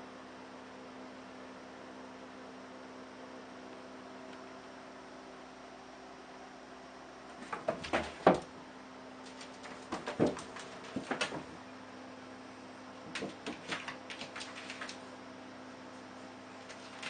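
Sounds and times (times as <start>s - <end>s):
steady hum: 0.0s - 17.0s
cat claws scrabbling in bathtub: 7.3s - 8.5s, 9.2s - 11.6s, 13.0s - 15.1s, 16.6s - 17.0s.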